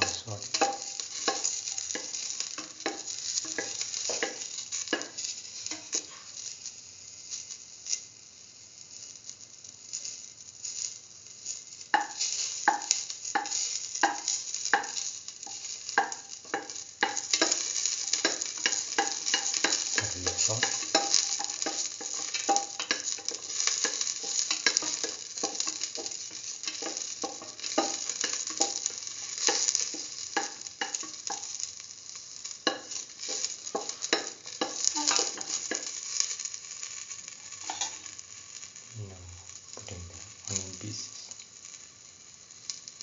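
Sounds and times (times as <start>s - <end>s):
spatula scraping and clicking on pan: 0.0s - 6.3s, 12.0s - 31.6s, 32.6s - 38.1s
shallots sizzling in oil: 0.0s - 43.0s.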